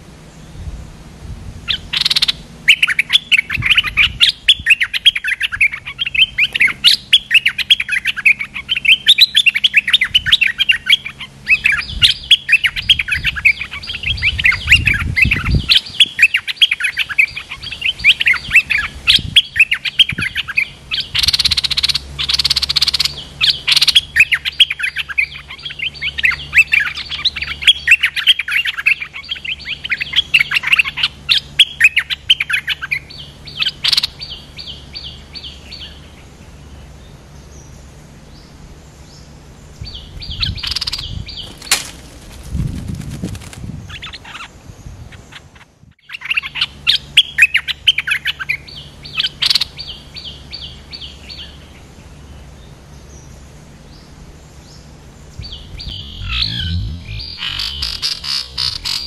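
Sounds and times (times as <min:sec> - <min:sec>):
bulbuls chattering chirps: 0:01.7 - 0:59.0.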